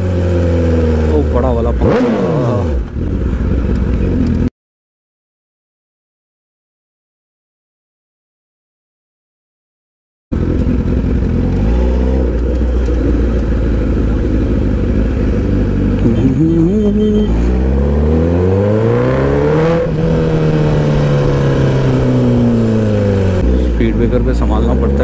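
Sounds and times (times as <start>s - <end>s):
motorcycle engine running: 0.0s - 4.5s, 10.3s - 25.0s.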